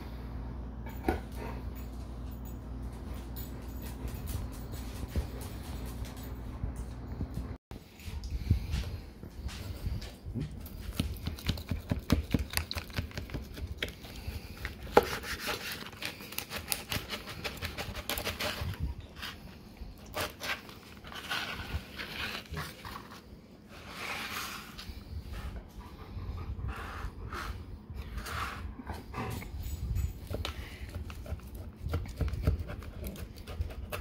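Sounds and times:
knife sawing through steak crust: 14.8s - 18.8s.

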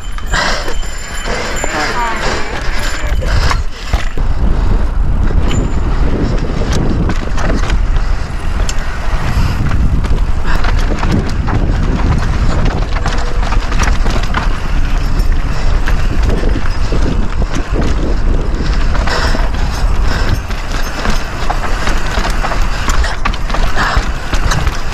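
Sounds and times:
bike knocking and rattling: 0.0s - 24.9s
wind buffeting microphone: 0.0s - 24.9s
tyres running over rock: 6.2s - 24.9s.

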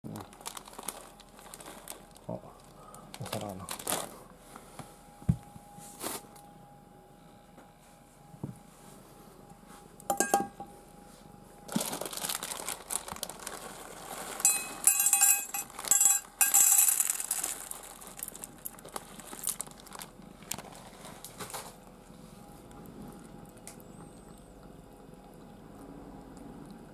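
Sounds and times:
plastic bag crinkling: 0.1s - 4.2s, 11.7s - 21.9s
kibble clinking into metal bowl: 10.1s - 10.6s, 14.4s - 17.7s
cat eating from bowl: 19.6s - 26.9s.

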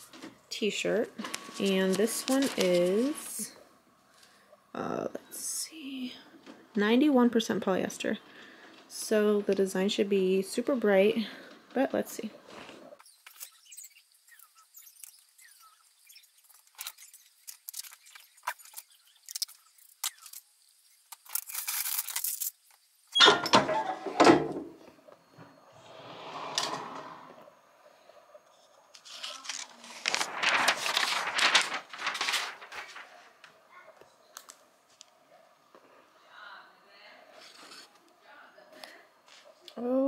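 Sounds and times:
paper rustling: 1.2s - 3.4s, 14.7s - 20.4s, 29.0s - 33.6s
fabric and paper handling clicks: 29.0s - 33.6s.

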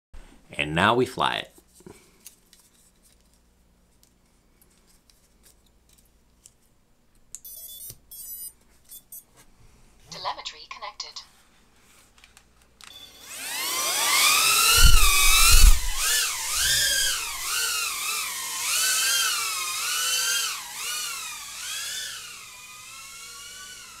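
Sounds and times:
drone motors whining: 12.9s - 24.0s
low thumps: 14.7s - 17.4s.

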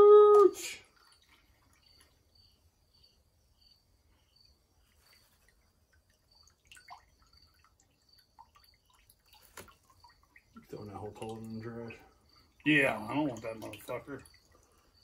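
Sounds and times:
cricket chirping: 0.0s - 15.0s
liquid dripping into metal pot: 5.8s - 15.0s.

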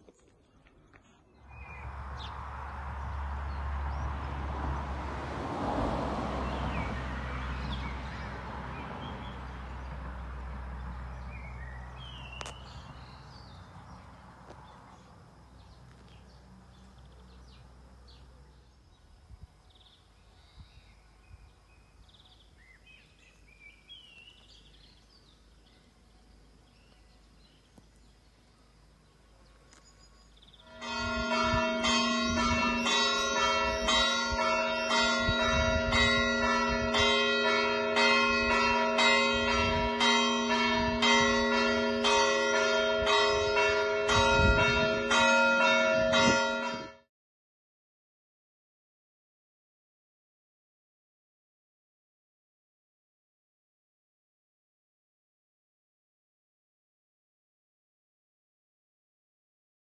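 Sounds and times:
church bells ringing: 30.6s - 47.1s.

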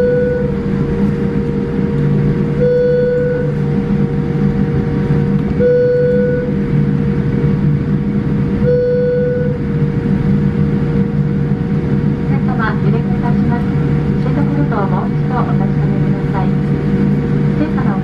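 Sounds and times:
short tone: 0.0s - 0.6s, 2.6s - 3.6s, 5.6s - 6.6s, 8.6s - 9.6s
airliner cabin drone: 0.0s - 18.0s.

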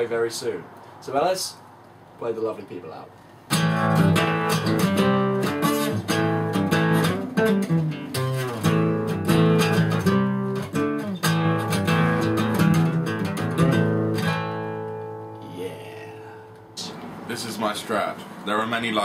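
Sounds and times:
acoustic guitar strumming chords: 3.5s - 17.0s.

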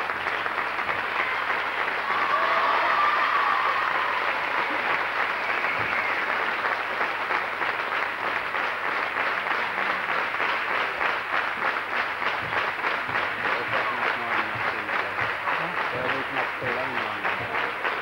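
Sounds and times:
crowd applauding: 0.0s - 18.0s
single claps: 5.2s - 18.0s.

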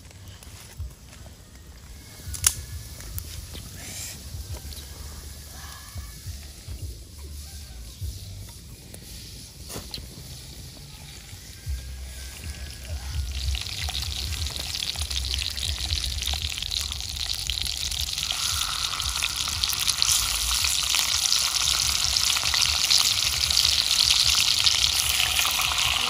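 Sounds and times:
fish sizzling on a hot stone: 2.0s - 26.0s.

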